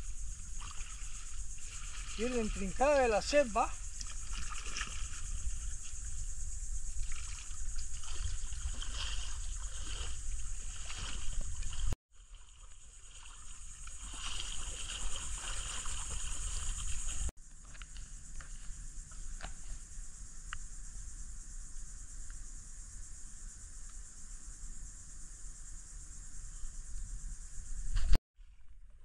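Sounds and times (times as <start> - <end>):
water trickling and splashing: 0.0 - 17.3
insects droning: 0.0 - 28.2.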